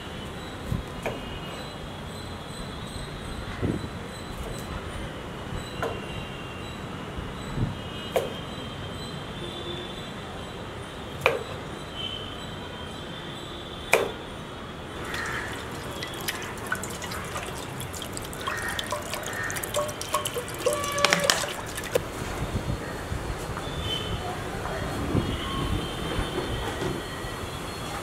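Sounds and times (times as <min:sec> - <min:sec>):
water pouring into metal pot: 0:15.0 - 0:22.1.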